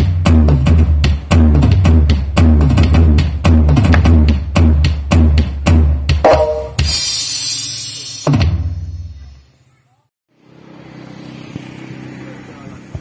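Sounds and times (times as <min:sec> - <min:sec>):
heavy bass drum hit: 0:00.0 - 0:07.2
cymbal crash: 0:06.3 - 0:08.9.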